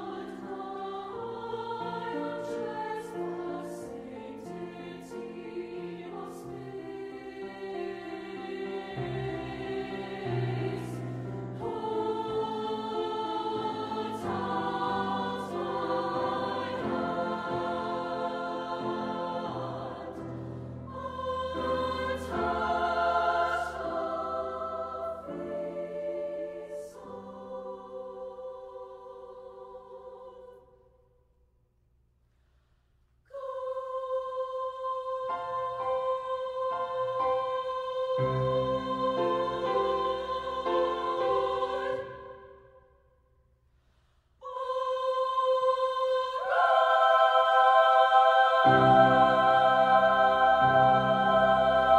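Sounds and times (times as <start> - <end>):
treble choir singing: 0.0 - 31.0, 33.3 - 43.0, 44.4 - 51.9
piano chords: 46.5 - 51.9.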